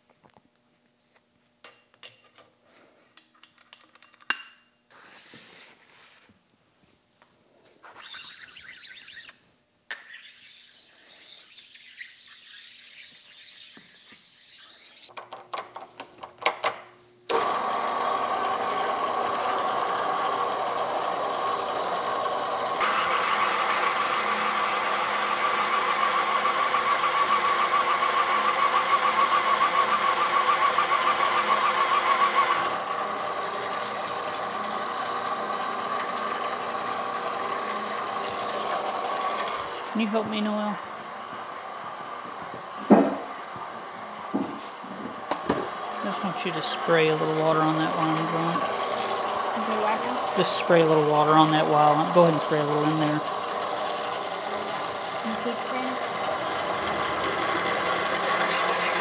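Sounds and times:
drill press motor running: 17.3s - 59.0s
drill boring into plastic: 22.7s - 39.4s, 46.9s - 59.0s.

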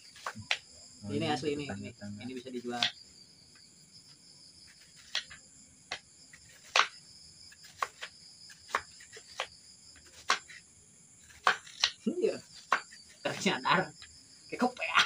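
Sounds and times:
crickets chirping: 0.0s - 15.0s
knife chopping on cutting board: 2.8s - 3.0s, 4.8s - 7.0s, 7.6s - 10.6s, 11.3s - 13.4s.

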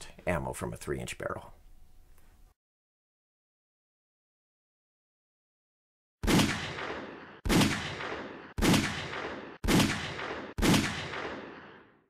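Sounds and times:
pistol shots: 6.2s - 12.0s.

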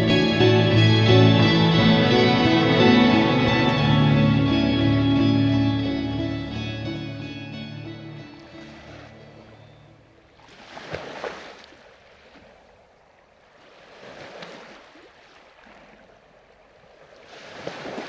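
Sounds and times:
sea water washing along hull: 8.4s - 18.0s.

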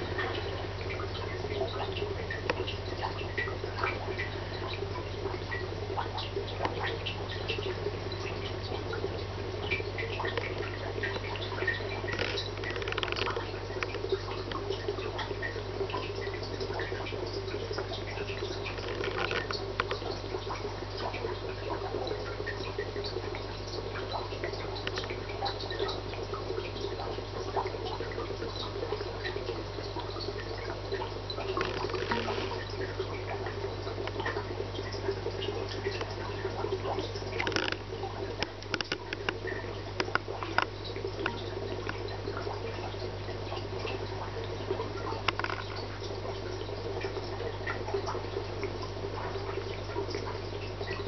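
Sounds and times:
water trickling and dripping: 0.0s - 51.0s
small clicks: 12.1s - 14.6s, 37.4s - 37.8s, 38.4s - 39.4s.

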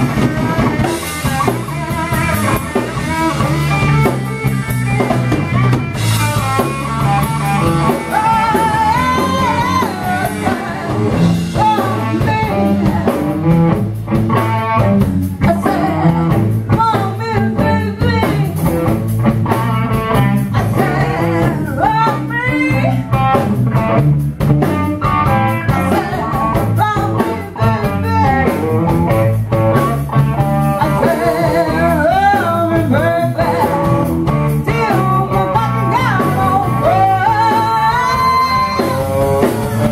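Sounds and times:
drums: 0.0s - 39.9s
electric guitar: 0.0s - 39.9s
woman singing into microphone: 7.9s - 13.5s, 15.4s - 18.7s, 20.4s - 23.0s, 25.6s - 28.7s, 30.8s - 39.6s.

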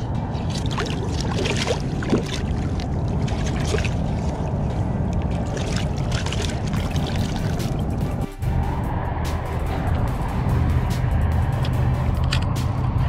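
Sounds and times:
steady wash of water: 0.3s - 8.2s
water splashing against rocks: 0.4s - 8.0s.

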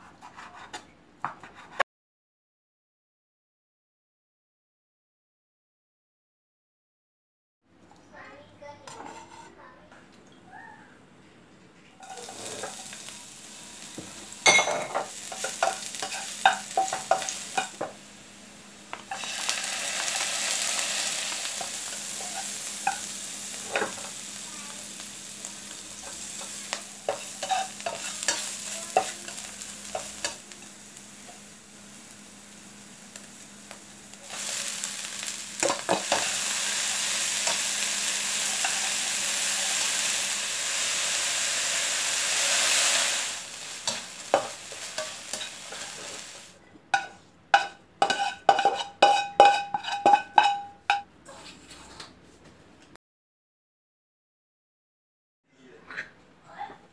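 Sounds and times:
food sizzling in oil: 12.0s - 51.0s.

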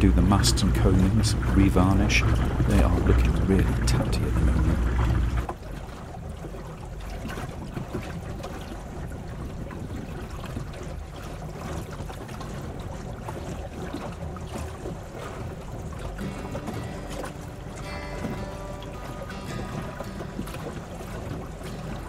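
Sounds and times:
low rumble: 0.0s - 5.5s
water splashing along boat hull: 0.0s - 22.0s.

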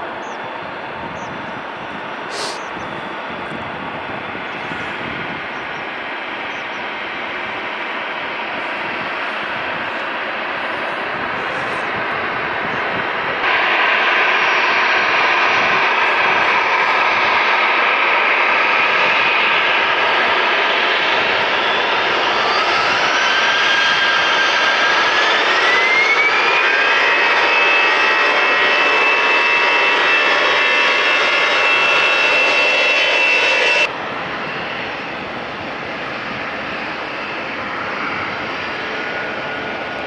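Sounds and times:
jet engines roaring: 0.0s - 40.0s
engine whine rising: 8.4s - 34.9s.

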